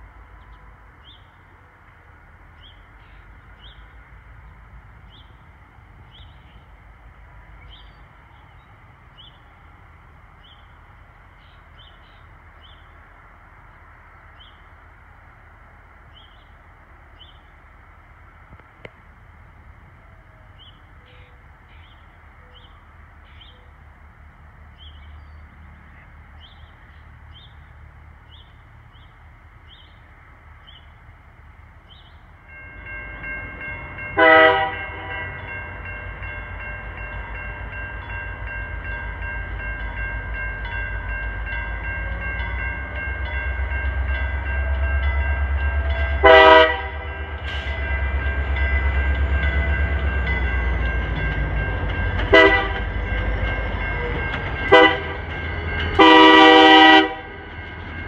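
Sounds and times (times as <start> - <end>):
train rumble: 0.0 - 58.0
crossing bell ringing: 32.4 - 58.0
locomotive horn blasts: 34.1 - 35.5, 45.8 - 48.2, 52.1 - 57.5.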